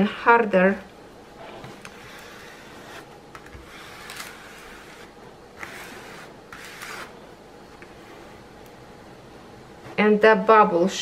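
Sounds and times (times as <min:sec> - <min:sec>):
plastic tool scraping film: 0:01.7 - 0:07.2.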